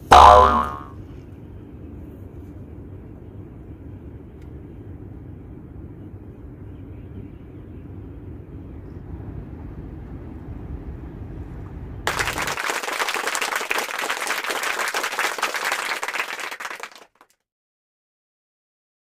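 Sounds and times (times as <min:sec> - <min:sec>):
applause sound effect: 0:12.1 - 0:17.4.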